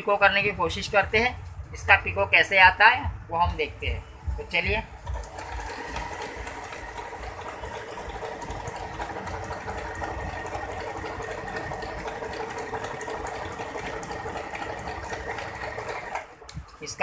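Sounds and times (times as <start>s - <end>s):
sewing machine running: 5.0s - 16.4s.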